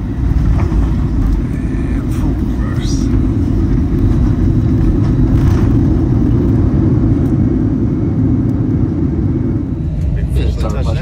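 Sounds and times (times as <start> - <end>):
jet engines reverse thrust rumble: 0.0 - 11.0.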